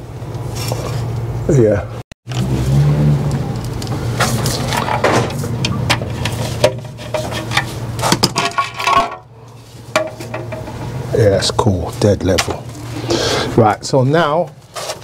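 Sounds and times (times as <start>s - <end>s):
steady low hum: 3.2s - 14.9s.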